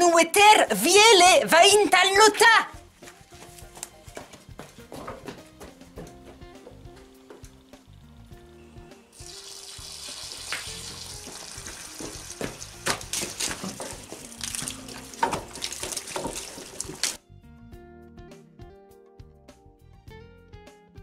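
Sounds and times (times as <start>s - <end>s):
quiet background music: 0.0s - 21.0s
water running from a hose: 7.0s - 17.2s
sharp splashes and knocks: 10.4s - 17.2s.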